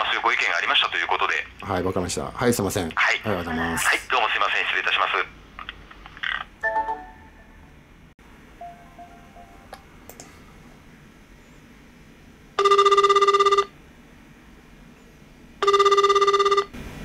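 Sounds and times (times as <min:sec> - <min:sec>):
telephone ringback tone: 0:08.6 - 0:09.7, 0:12.6 - 0:13.7, 0:15.6 - 0:16.8.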